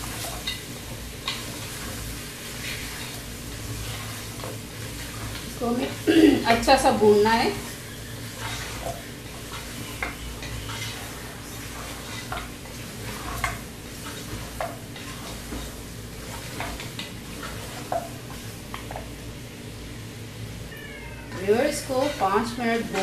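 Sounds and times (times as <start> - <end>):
meat sizzling in a pot: 0.0 - 23.0
spatula scraping metal pot: 2.6 - 18.0, 21.3 - 23.0.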